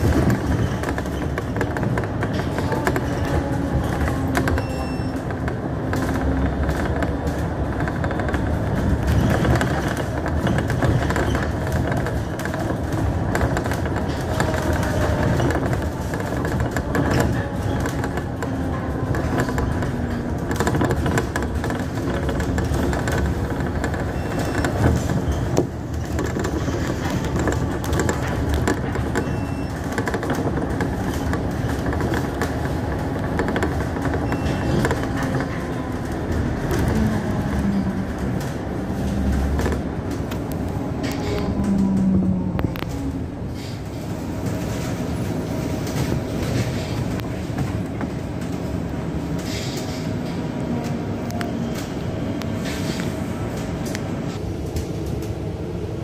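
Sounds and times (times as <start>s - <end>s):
bus engine and tyres rumbling: 0.0s - 56.0s
bodywork knocks and rattles: 5.2s - 40.5s.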